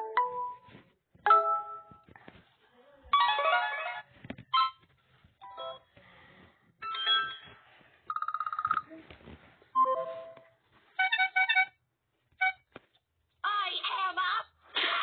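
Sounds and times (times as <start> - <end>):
tablet notification tones: 0.0 - 0.7, 9.8 - 10.4.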